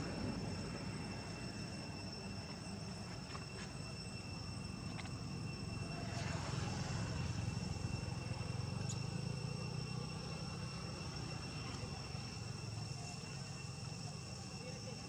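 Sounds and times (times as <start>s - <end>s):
distant engine drone: 0.0s - 15.0s
high-pitched insect buzzing: 6.4s - 15.0s.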